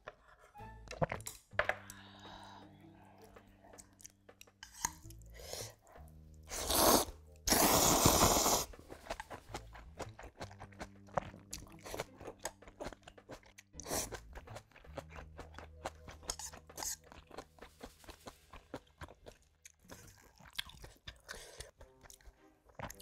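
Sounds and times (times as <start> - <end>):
wet chewing: 3.2 - 23.0
slurping noodles: 5.5 - 12.1.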